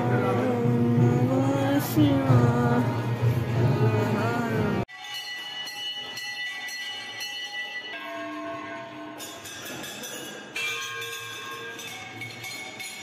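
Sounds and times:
brass bells ringing: 4.9 - 13.0.

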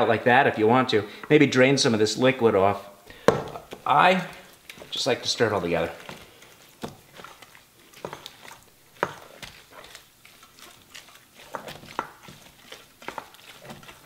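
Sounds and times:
spatula scraping metal bowl: 3.6 - 14.0.

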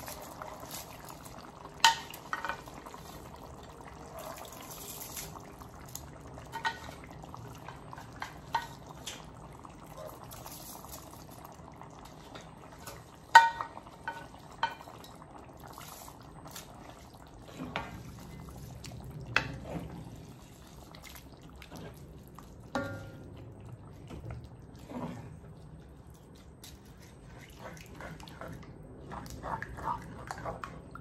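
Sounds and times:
broth bubbling and sloshing: 0.0 - 31.0
spoon knocking against pan: 22.8 - 23.2.

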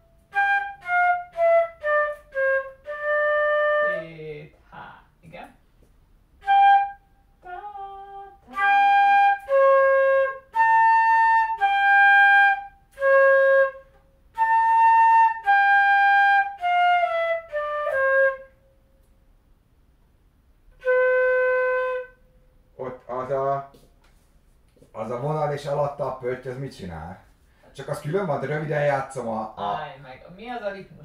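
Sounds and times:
flute playing slow melody: 0.0 - 4.1, 6.4 - 18.7, 20.7 - 22.4.

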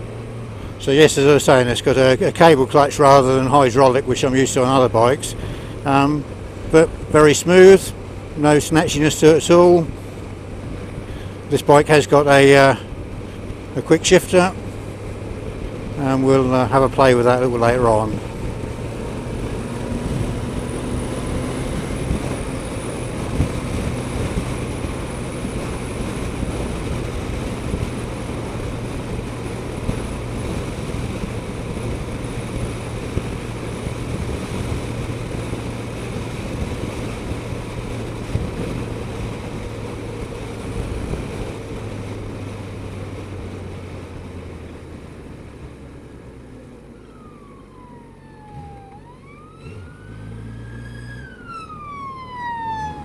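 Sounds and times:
wind and road noise: 0.0 - 53.0
siren wailing: 46.6 - 53.0.

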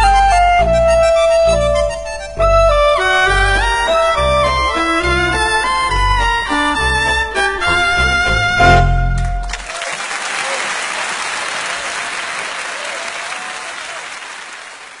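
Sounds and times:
stringed instrument music: 0.0 - 9.6
audience applauding: 9.2 - 15.0.

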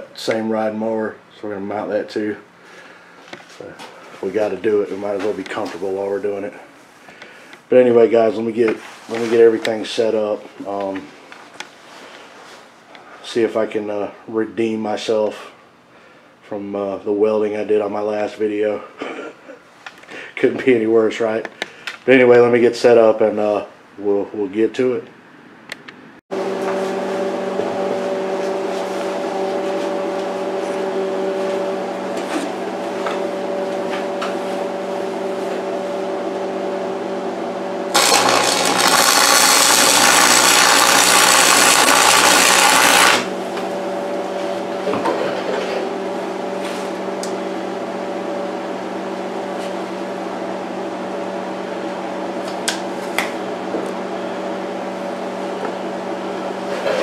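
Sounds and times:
welding machine hum: 37.7 - 44.9
arc welding crackling hiss: 37.9 - 43.3.

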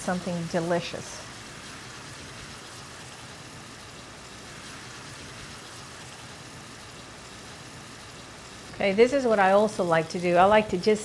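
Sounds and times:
meat sizzling in a skillet: 0.0 - 10.8.

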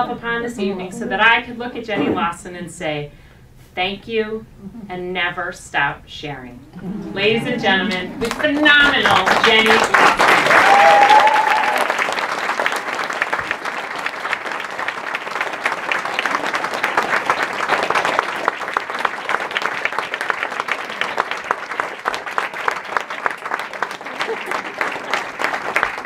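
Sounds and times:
audience applauding: 6.8 - 26.0.

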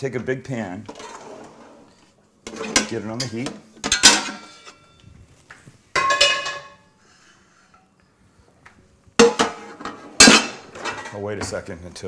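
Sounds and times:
metal cookware clanking: 2.4 - 5.0, 5.9 - 6.9, 9.2 - 11.6.

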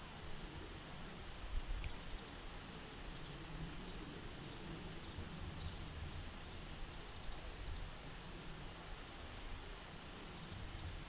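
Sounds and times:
faint high ticks: 1.8 - 2.3.

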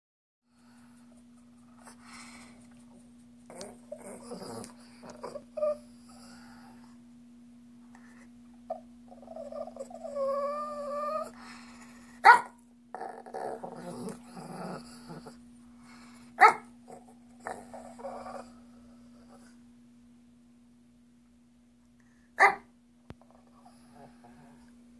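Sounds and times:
dog rough growling: 3.5 - 6.8, 8.7 - 11.4, 12.9 - 15.4, 16.9 - 19.4
dog whiny growl: 3.5 - 6.8, 8.7 - 11.4, 12.9 - 15.4, 16.9 - 19.4, 23.6 - 24.7.

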